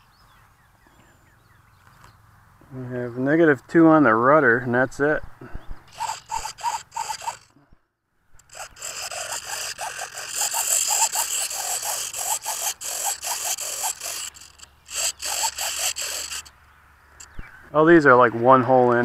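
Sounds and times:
servos buzzing in short bursts: 0:05.9 - 0:07.5, 0:08.4 - 0:17.5.

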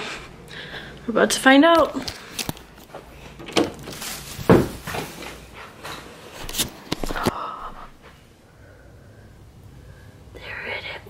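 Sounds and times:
footsteps: 0:01.7 - 0:08.3.

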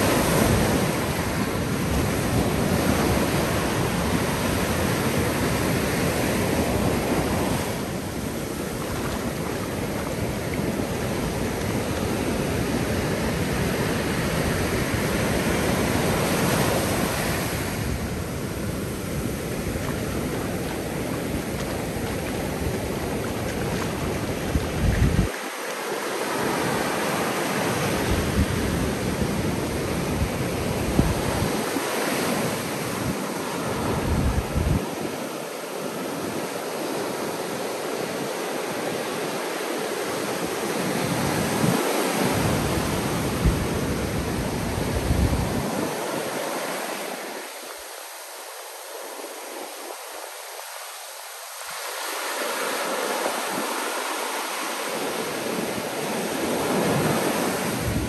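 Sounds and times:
wind buffeting microphone: 0:00.0 - 0:25.4, 0:27.7 - 0:35.1, 0:41.0 - 0:46.1, 0:55.5 - 0:58.0
ocean surf breaking on beach: 0:00.0 - 0:58.0.

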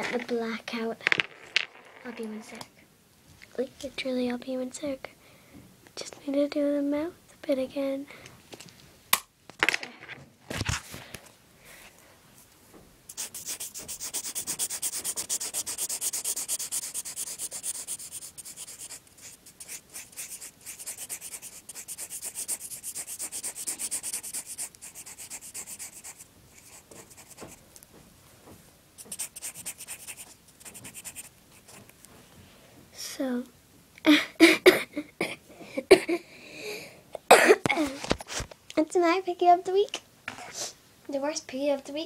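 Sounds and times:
felt-tip pen scribbling on paper: 0:13.1 - 0:27.6, 0:29.0 - 0:31.8.

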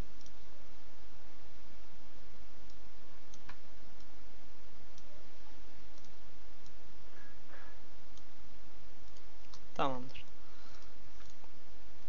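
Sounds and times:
microphone hiss: 0:00.0 - 0:12.0
computer mouse clicks: 0:02.6 - 0:04.1, 0:05.9 - 0:06.8, 0:09.0 - 0:11.5.

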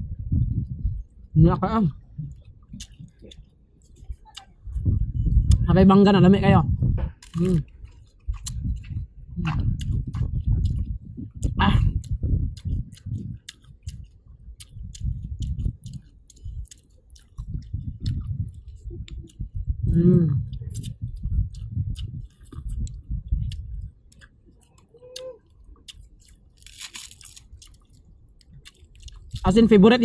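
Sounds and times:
person chewing food: 0:02.1 - 0:04.8, 0:07.1 - 0:19.6, 0:20.4 - 0:29.4
wet mouth clicks: 0:02.2 - 0:03.5, 0:07.2 - 0:19.4, 0:20.3 - 0:26.4
person humming: 0:19.9 - 0:20.5.

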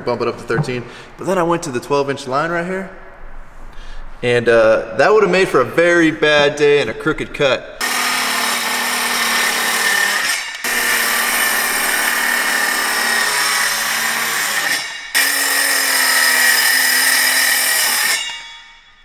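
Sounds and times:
circular saw cutting plywood: 0:07.8 - 0:18.5.

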